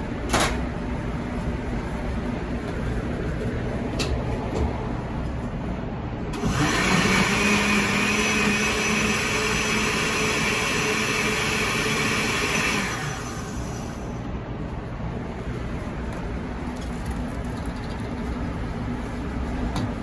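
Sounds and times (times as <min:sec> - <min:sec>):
blender motor running: 0:06.4 - 0:14.0.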